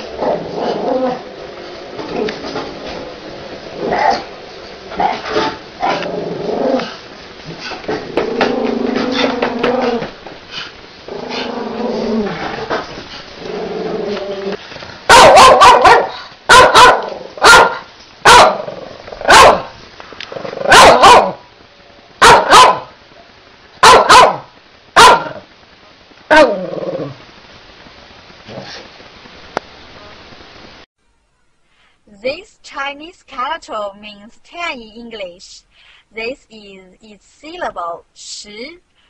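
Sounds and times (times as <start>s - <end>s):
puppy barking: 15.1s - 19.7s, 20.7s - 21.4s, 22.2s - 23.0s, 23.8s - 25.4s.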